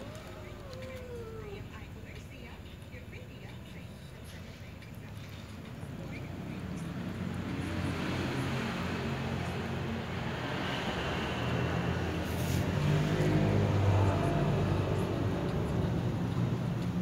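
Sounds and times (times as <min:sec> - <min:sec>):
low mechanical rumble with hum: 0:00.0 - 0:06.9.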